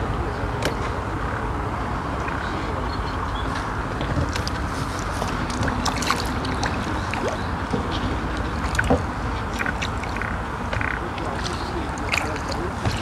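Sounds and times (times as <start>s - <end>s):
small splashes and ticks: 4.2s - 13.0s
fish splashing at surface: 5.1s - 7.4s, 8.6s - 10.4s.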